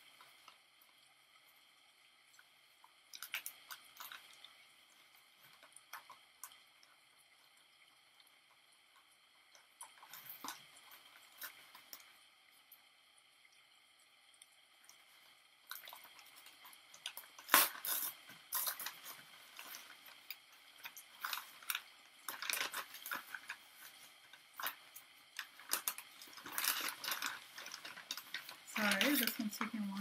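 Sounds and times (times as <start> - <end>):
paper wrapping rustling: 20.8 - 24.8, 25.4 - 29.5.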